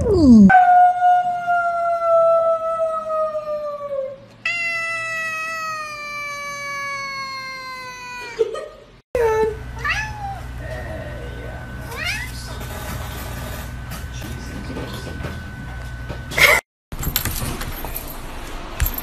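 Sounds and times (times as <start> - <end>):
cat meowing: 4.5 - 8.3, 9.8 - 10.4.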